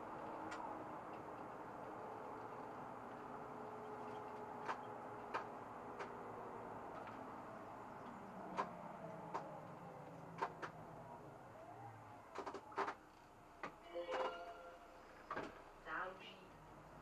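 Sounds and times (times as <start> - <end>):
bus engine droning: 0.0 - 17.0
sharp clicks: 4.0 - 6.2.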